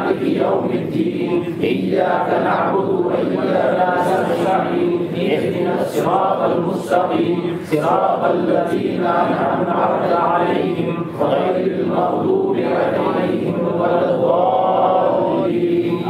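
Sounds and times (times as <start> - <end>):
men chanting together: 0.0 - 16.0.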